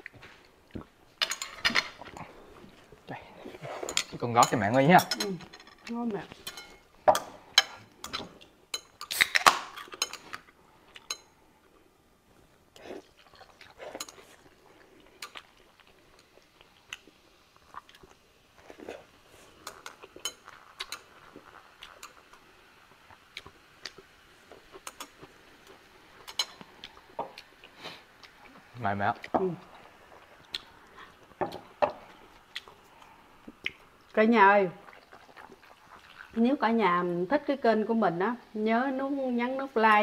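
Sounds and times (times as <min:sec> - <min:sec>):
cutlery clinking on plates and glass: 0:01.2 - 0:01.9
faint fizzing hiss: 0:05.9 - 0:40.0
chewing: 0:12.8 - 0:22.5, 0:23.1 - 0:34.2, 0:34.8 - 0:36.4.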